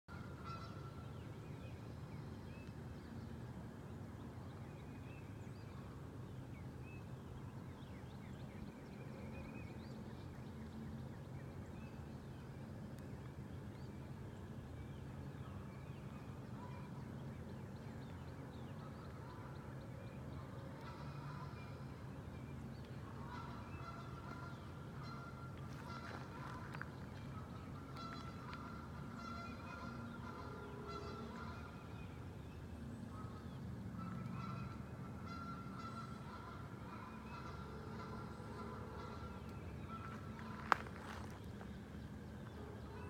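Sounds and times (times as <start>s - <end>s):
geese honking: 20.8s - 21.8s, 23.2s - 31.8s, 34.0s - 41.4s.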